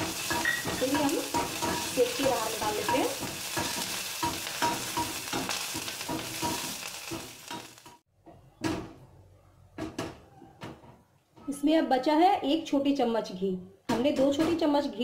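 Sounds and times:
leaves sizzling in hot fat: 0.0s - 8.0s
spatula scraping a pan: 0.0s - 8.0s.

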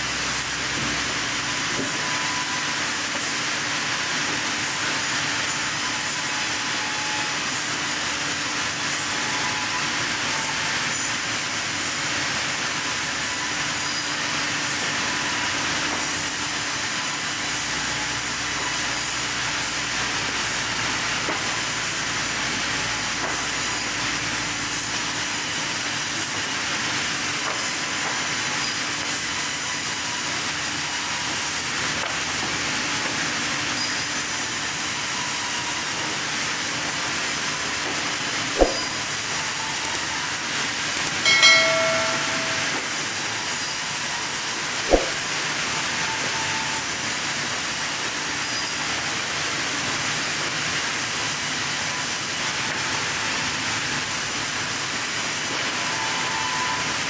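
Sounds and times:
band saw cutting wood: 37.0s - 45.4s.

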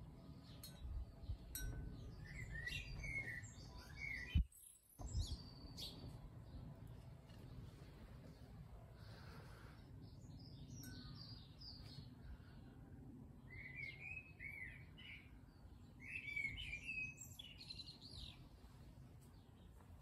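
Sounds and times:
faint low background noise: 0.0s - 20.0s
songbirds warbling: 13.4s - 18.5s.

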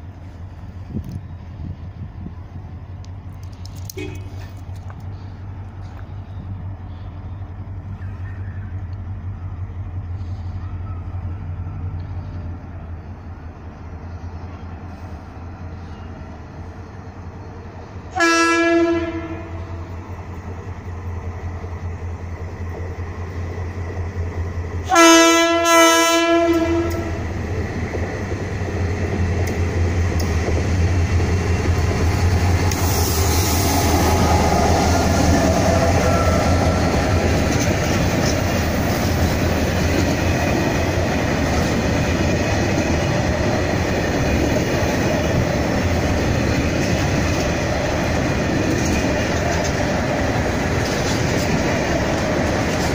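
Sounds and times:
diesel locomotive engine running: 0.0s - 52.9s
rumble and clatter of train: 0.0s - 52.9s
train horn blasts: 18.1s - 20.0s, 24.8s - 27.2s.

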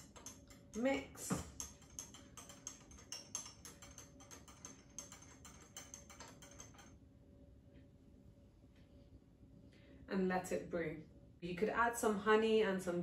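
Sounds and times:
teaspoon clinking in glass cup: 0.0s - 6.9s.

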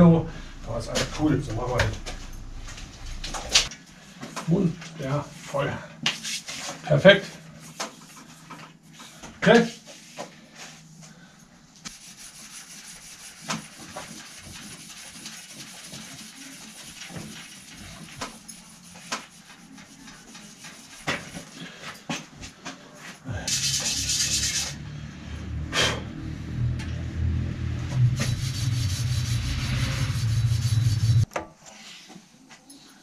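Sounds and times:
low rumble: 0.0s - 3.7s, 23.6s - 31.3s.

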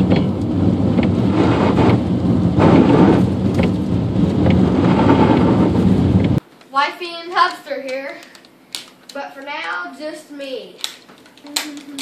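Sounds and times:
engine and road rumble: 0.0s - 6.4s
heavy rain on a car: 0.0s - 6.4s.

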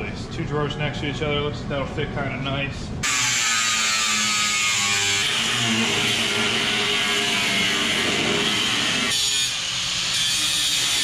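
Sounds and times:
angle grinder cutting sheet steel: 3.0s - 11.0s.

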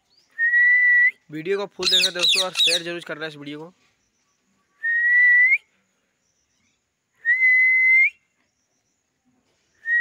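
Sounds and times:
parakeet whistling: 1.8s - 2.9s.

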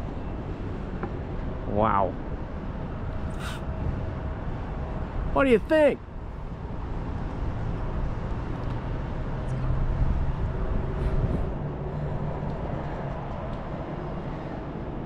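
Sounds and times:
wind rumble on microphone: 6.1s - 15.0s.

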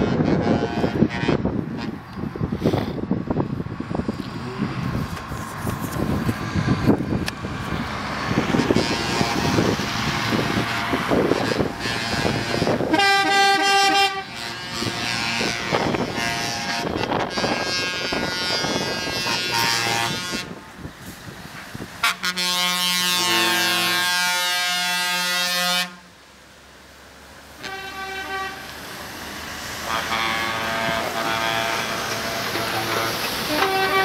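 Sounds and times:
truck air horn blasts: 0.0s - 2.0s, 8.4s - 20.7s, 22.0s - 26.1s, 27.6s - 28.8s, 29.8s - 34.0s
trucks driving past: 0.0s - 34.0s.

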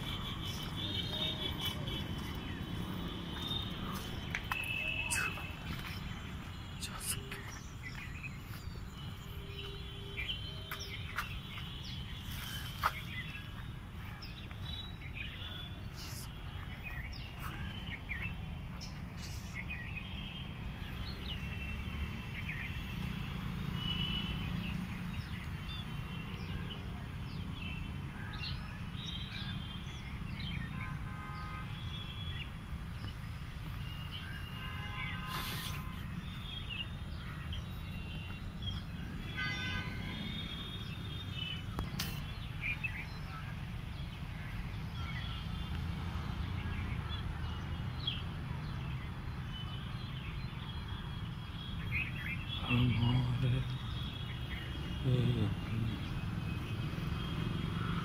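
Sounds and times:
small birds chirping: 0.0s - 23.1s, 23.8s - 57.9s.

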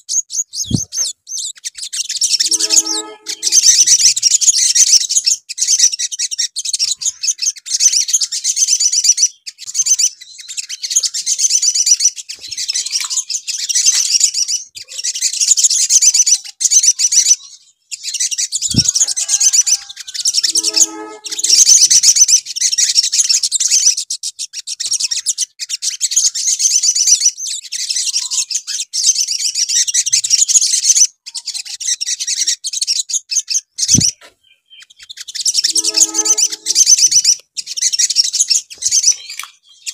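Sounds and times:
birds twittering: 0.0s - 23.9s, 33.5s - 39.9s.

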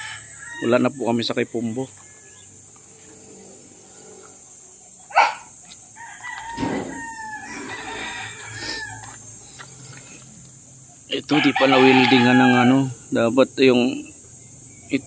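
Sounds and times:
rooster crowing: 0.0s - 2.6s, 5.1s - 9.3s, 11.2s - 13.1s.

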